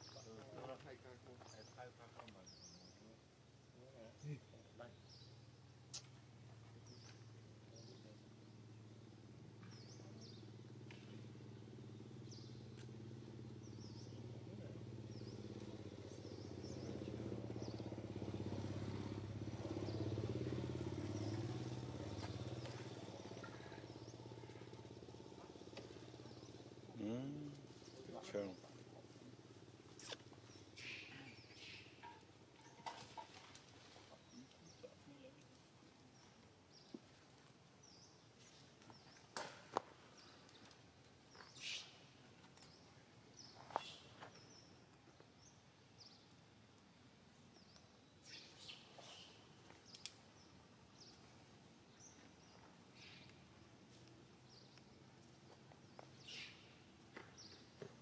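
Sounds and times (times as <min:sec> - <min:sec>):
short bird chirps: 0:56.2 - 0:56.7.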